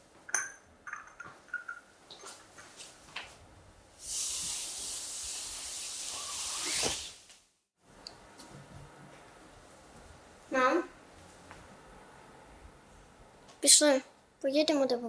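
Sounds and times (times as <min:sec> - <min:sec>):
tablecloth rustling and sliding: 0:05.6 - 0:07.2.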